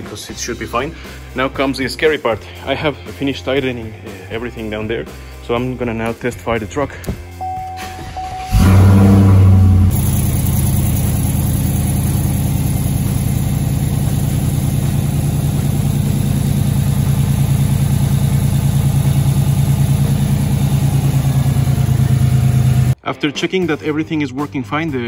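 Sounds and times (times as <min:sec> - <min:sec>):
truck engine idling: 0:08.4 - 0:23.0.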